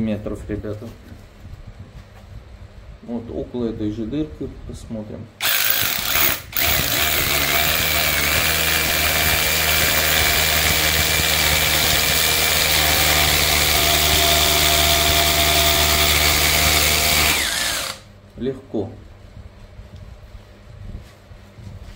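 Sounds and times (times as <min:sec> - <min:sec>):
rotary hammer drilling concrete: 0:05.4 - 0:18.1.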